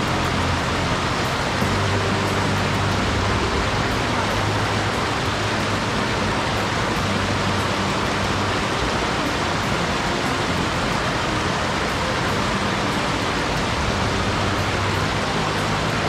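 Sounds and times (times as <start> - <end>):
stream water rushing: 0.0 - 16.0.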